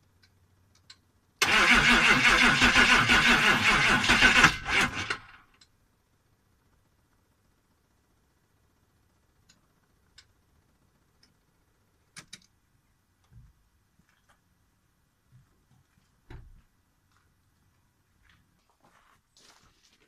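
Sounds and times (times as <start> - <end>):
faint clicks: 0.2 - 1.0
soft low thumps: 15.2 - 17.6.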